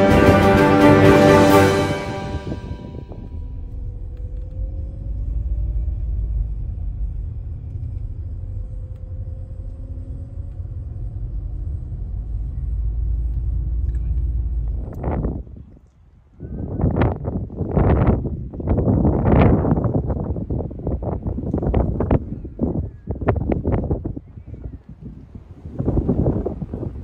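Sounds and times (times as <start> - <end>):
faint wavering hum: 1.6 - 15.2
car engine and tyres rumbling: 2.9 - 16.2.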